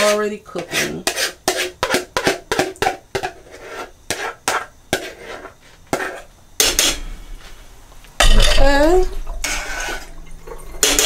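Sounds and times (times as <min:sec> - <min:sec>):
spoon scraping a bowl: 0:00.0 - 0:07.0, 0:09.4 - 0:10.2.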